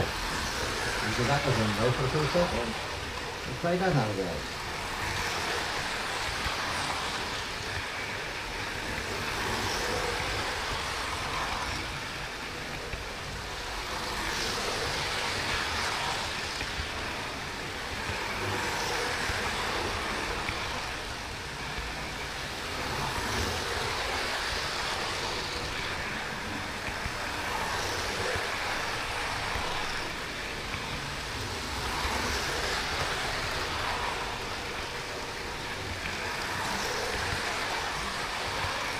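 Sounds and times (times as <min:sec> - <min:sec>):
model train wheels clattering: 0:00.0 - 0:38.9.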